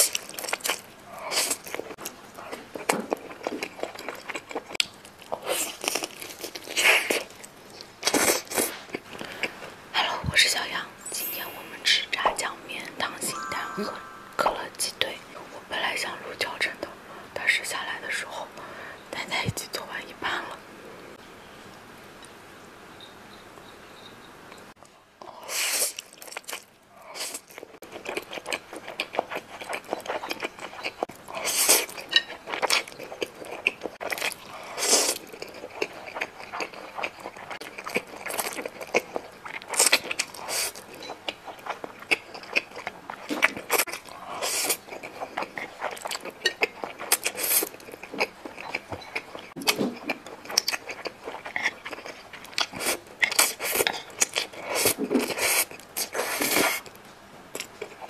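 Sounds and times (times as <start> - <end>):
slurping and chewing noodles: 0.0 - 9.7, 25.5 - 56.9.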